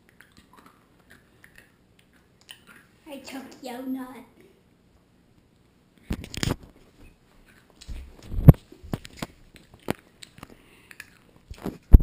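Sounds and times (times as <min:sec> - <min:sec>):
nut being chewed: 0:00.0 - 0:02.8, 0:08.9 - 0:11.8.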